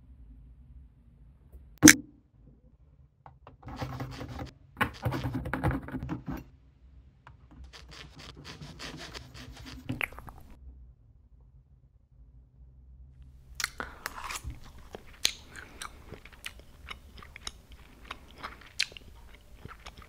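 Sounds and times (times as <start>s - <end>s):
knife sawing and scraping: 3.7s - 5.4s, 7.6s - 10.6s.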